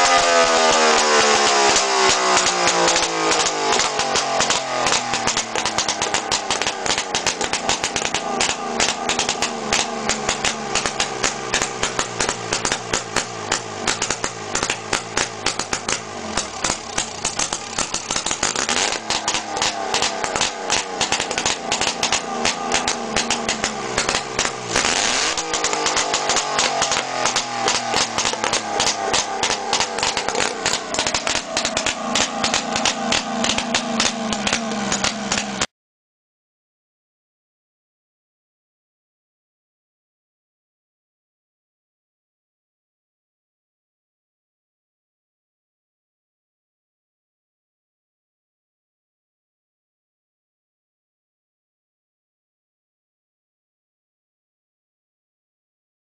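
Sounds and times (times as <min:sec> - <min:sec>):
motorcycle engine running: 0:00.0 - 0:35.7.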